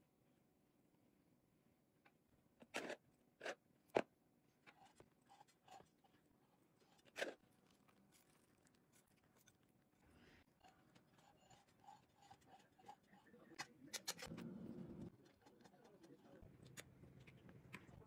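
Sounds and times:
utensil scraping cake: 4.6s - 14.5s, 15.1s - 16.8s.

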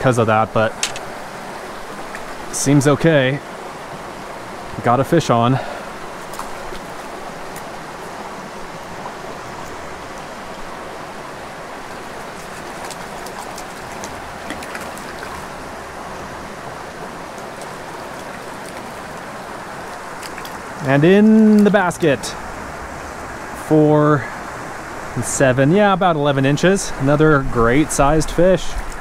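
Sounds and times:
creek flowing: 0.0s - 29.0s
fish splashing at the surface: 12.0s - 15.7s.

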